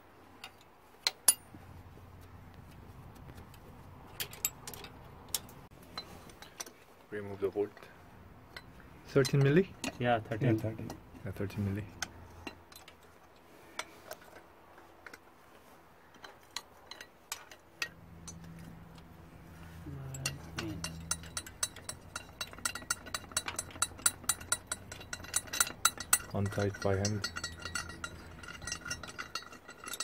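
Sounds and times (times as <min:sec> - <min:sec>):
wrench clinking on bolts: 0:16.1 - 0:19.1, 0:20.1 - 0:30.0.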